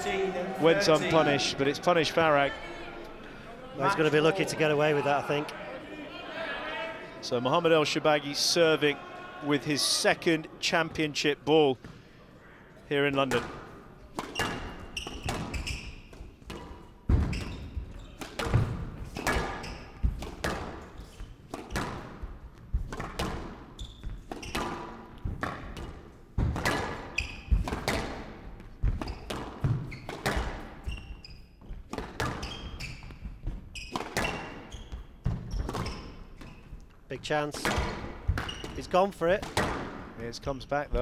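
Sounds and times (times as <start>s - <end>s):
squash racket strikes: 13.2s - 37.0s, 37.6s - 40.2s.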